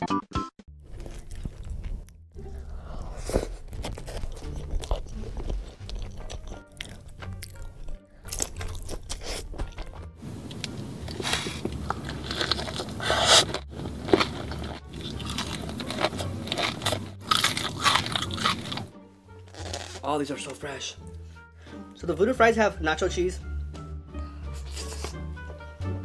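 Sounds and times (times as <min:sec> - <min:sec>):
crunchy bites and chewing: 0:00.9 - 0:09.8, 0:10.4 - 0:20.2.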